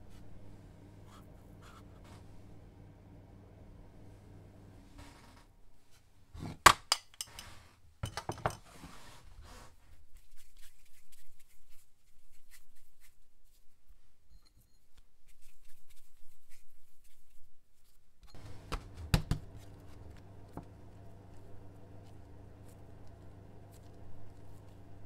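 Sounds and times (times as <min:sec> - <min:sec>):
soft handling sounds: 0:00.0 - 0:02.6, 0:08.4 - 0:25.0.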